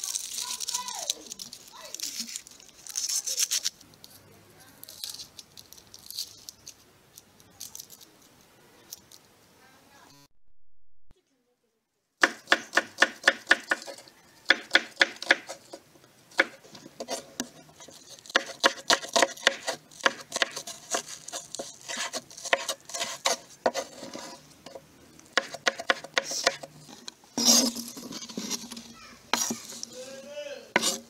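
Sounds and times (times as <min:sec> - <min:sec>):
knife chopping on wooden board: 0:12.2 - 0:15.8, 0:16.4 - 0:17.6, 0:18.3 - 0:24.8, 0:25.4 - 0:26.7, 0:29.4 - 0:29.8, 0:30.8 - 0:31.0.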